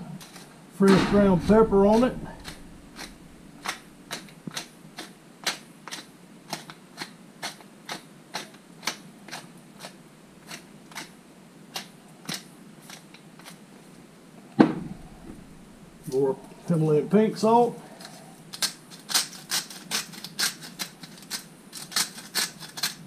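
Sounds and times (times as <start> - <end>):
pepper mill grinding: 18.0 - 23.0.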